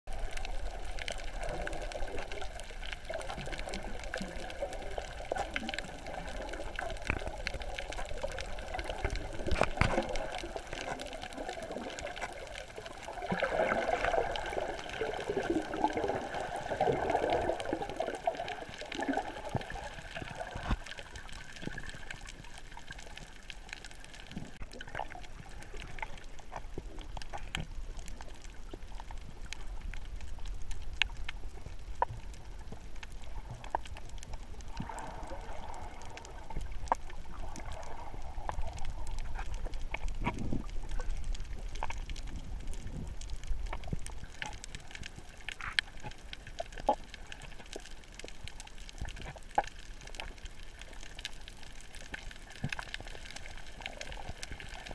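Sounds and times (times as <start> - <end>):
underwater bubbling and gurgling: 0.1 - 54.9
underwater clicks: 0.1 - 54.9.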